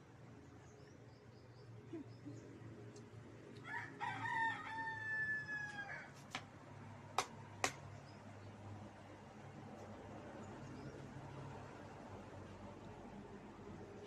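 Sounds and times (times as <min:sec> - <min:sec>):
rooster crowing: 0:03.6 - 0:06.2.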